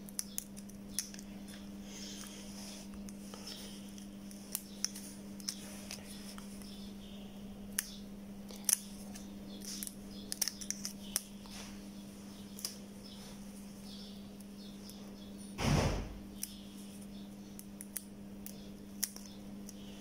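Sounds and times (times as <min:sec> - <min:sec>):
tweezers clicking and scratching: 0:00.0 - 0:02.3, 0:03.0 - 0:06.9, 0:07.7 - 0:11.3
steady low hum: 0:00.0 - 0:20.0.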